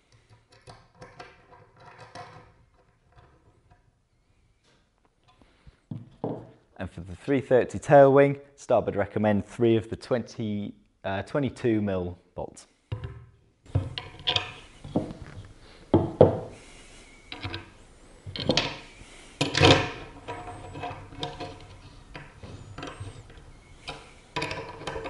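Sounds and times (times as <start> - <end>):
metal bolts clicking and scraping: 13.9 - 15.2, 19.4 - 25.0.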